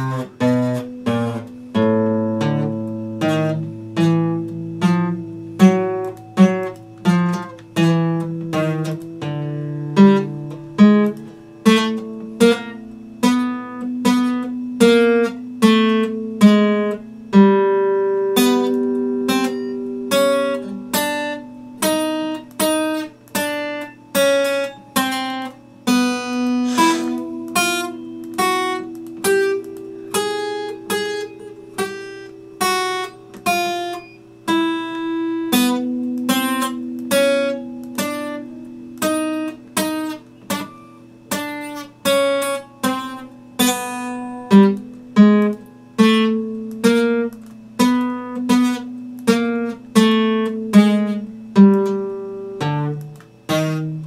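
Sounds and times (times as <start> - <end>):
acoustic guitar strumming: 0.0 - 54.0.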